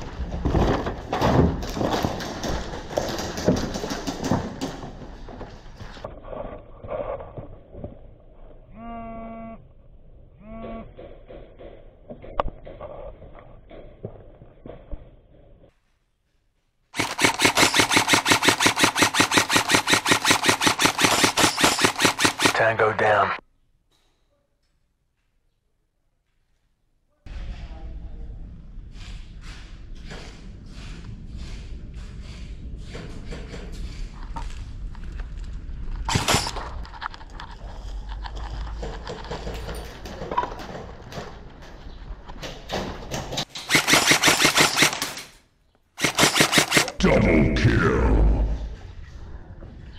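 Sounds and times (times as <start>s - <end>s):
airsoft gun firing full auto: 17.0s - 22.7s, 43.6s - 45.2s, 46.0s - 47.0s.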